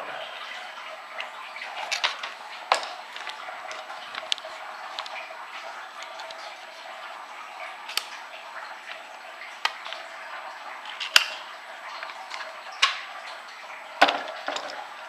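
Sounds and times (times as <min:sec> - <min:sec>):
rifle parts clicking and clacking: 0:01.8 - 0:05.2, 0:11.0 - 0:11.4, 0:14.0 - 0:14.8.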